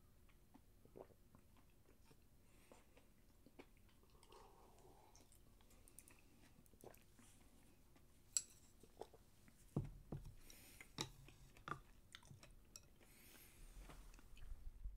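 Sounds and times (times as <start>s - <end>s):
person chewing food: 0.3s - 14.6s.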